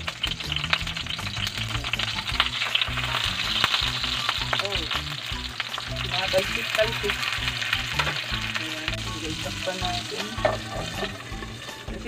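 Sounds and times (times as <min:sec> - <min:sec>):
spattering oil pops: 0:00.0 - 0:08.6
fish frying in hot oil: 0:00.0 - 0:12.0.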